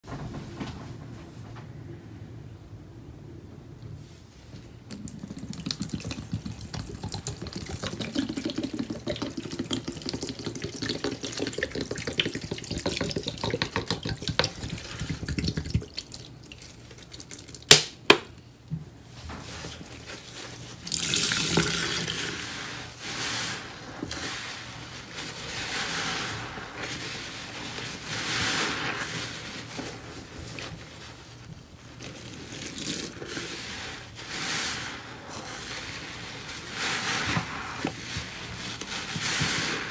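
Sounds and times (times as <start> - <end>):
liquid pouring and splashing: 4.9 - 17.8, 19.9 - 24.6
wet sponge squelches: 19.5 - 39.9.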